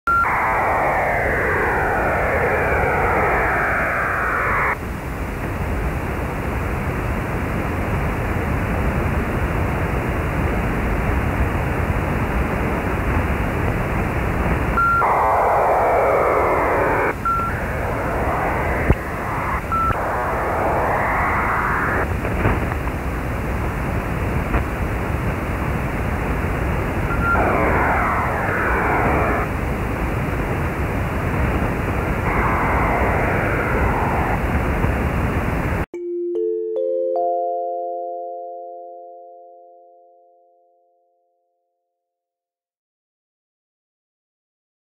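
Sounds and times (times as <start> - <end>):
radio receiver hiss: 0.1 - 8.2, 12.4 - 35.9
digital data signal tones: 14.8 - 22.1, 27.1 - 29.5.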